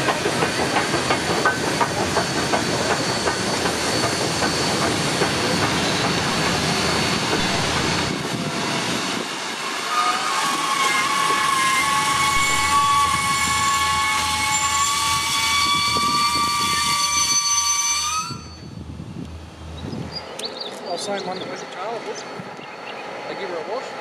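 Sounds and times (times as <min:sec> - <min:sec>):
train wheels clattering on rails: 0:00.0 - 0:08.6
high-pitched wheel squeal: 0:09.8 - 0:18.8.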